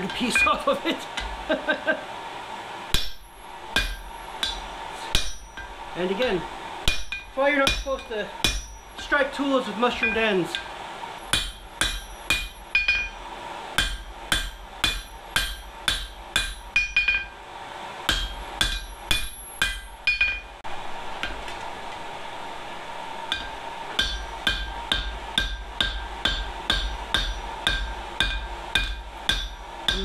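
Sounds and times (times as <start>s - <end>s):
hammer striking steel on anvil: 0.0s - 0.6s, 2.9s - 5.9s, 6.9s - 9.2s, 10.0s - 17.4s, 18.1s - 20.6s, 21.2s - 21.5s, 23.3s - 30.0s.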